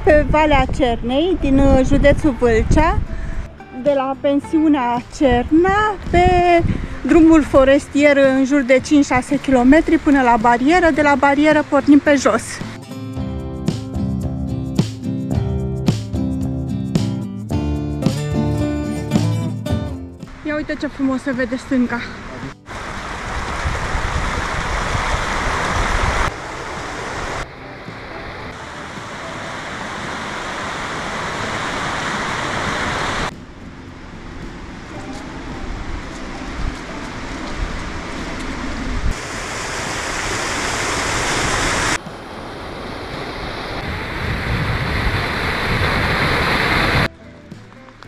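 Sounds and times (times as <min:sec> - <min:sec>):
stream rushing over rocks: 0:22.2 - 0:47.1.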